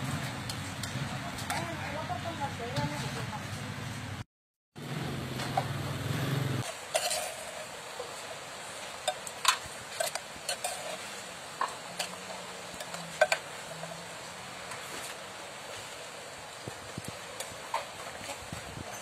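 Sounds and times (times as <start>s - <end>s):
metal spoon scraping clay pot: 6.6s - 7.8s, 9.9s - 13.4s.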